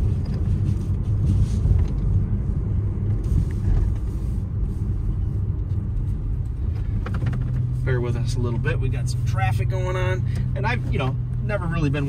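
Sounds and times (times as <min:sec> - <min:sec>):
car engine drone: 0:00.0 - 0:12.0
road noise: 0:00.0 - 0:12.0.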